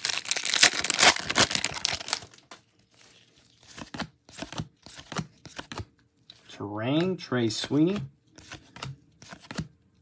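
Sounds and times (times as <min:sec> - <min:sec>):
foil wrapper tearing and crinkling: 0:00.0 - 0:03.3
cards clicking: 0:03.7 - 0:05.9.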